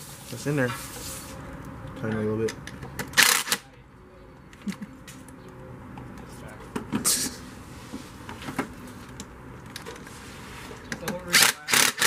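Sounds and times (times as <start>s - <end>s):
brushing and scraping noises: 0.0s - 1.5s, 7.0s - 9.1s, 9.9s - 10.9s.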